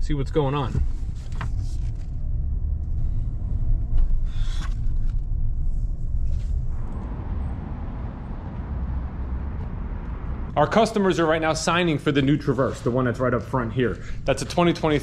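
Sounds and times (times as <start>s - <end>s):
pickup truck rumble: 6.5s - 12.2s.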